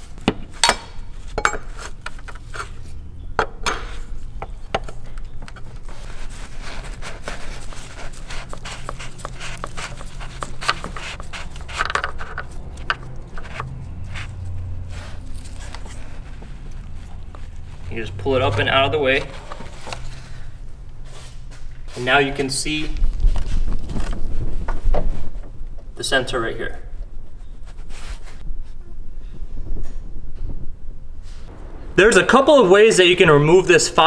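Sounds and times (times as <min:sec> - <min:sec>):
wrench clicking and scraping metal: 0:08.6 - 0:14.2
shop towels rustling: 0:12.6 - 0:24.5.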